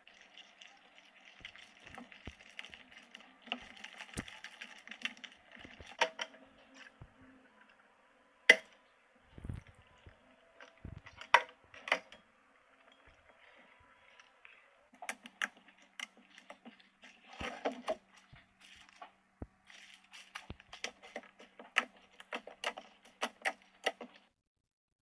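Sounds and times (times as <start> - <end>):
spatula stirring foam squishing: 0.0 - 7.4, 12.8 - 24.3.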